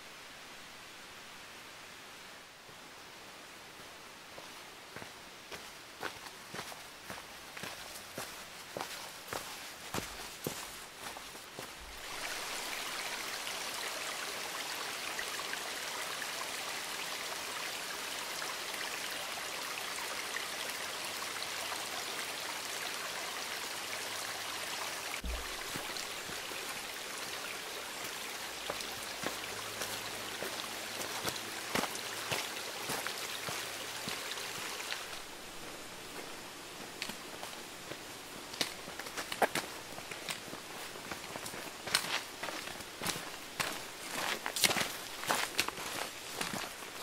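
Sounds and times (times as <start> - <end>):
creek water rushing over stones: 4.3 - 47.0.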